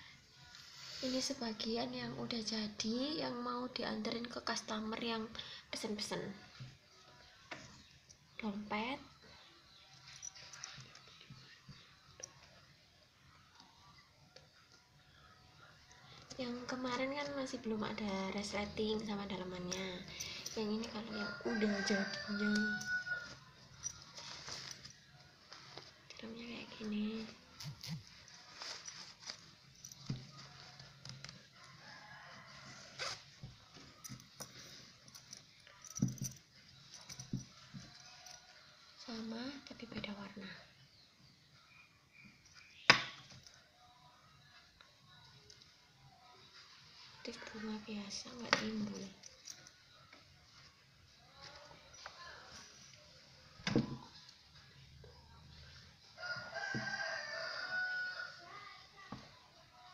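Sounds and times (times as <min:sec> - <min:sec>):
rooster crowing: 0:20.9 - 0:23.4, 0:56.2 - 0:58.5.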